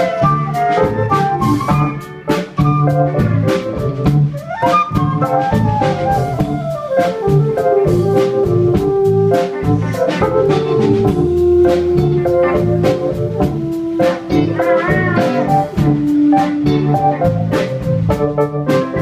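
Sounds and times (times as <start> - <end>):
drum kit beat: 0.0 - 19.0
flute melody: 0.0 - 19.0
live band playing: 0.0 - 19.0
pedal steel guitar: 0.0 - 19.0.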